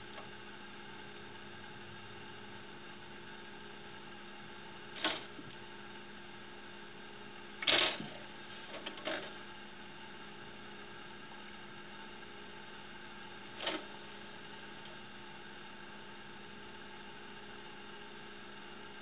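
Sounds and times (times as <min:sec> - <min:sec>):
steady low hum: 0:00.0 - 0:19.0
clatter on metal shelf: 0:07.6 - 0:09.4.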